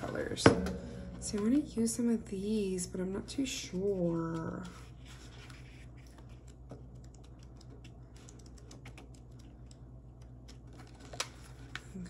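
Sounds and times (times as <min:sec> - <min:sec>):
steady low hum: 0:00.0 - 0:12.0
paper pages flicking: 0:04.3 - 0:11.9.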